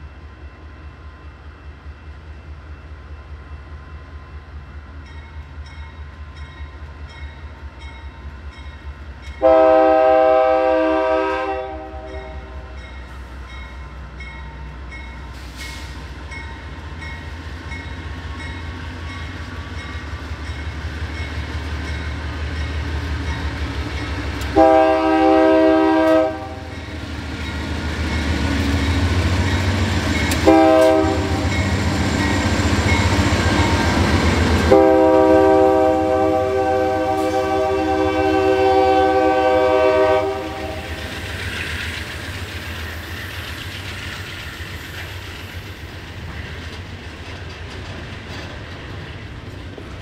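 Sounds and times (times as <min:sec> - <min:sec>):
diesel locomotive rumble: 0:01.4 - 0:50.0
train air horn blasts: 0:09.4 - 0:12.8, 0:24.5 - 0:26.8, 0:30.3 - 0:31.8, 0:34.5 - 0:41.0
train wheels rolling: 0:12.0 - 0:50.0.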